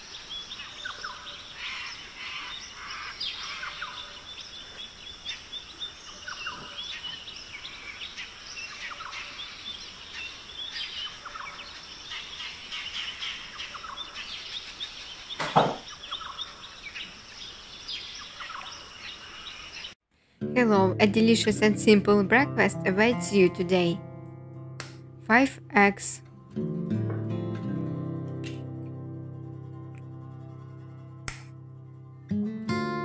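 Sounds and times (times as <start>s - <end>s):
small birds chirping: 0.0s - 20.0s
loud knock: 15.4s - 15.8s.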